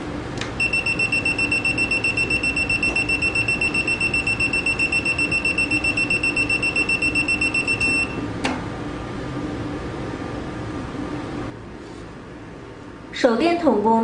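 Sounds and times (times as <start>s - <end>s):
multimeter buzzer beeping rapidly: 0.6s - 8.2s.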